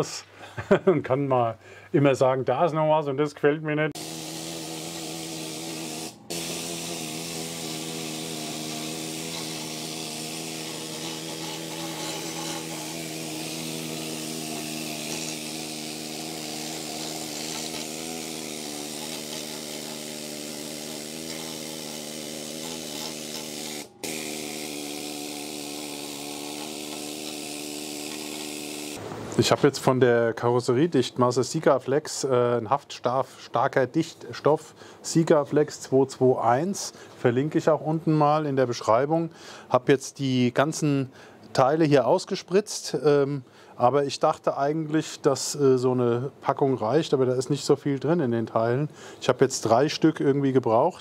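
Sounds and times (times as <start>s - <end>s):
electric power tool motor hum: 4.0s - 29.0s.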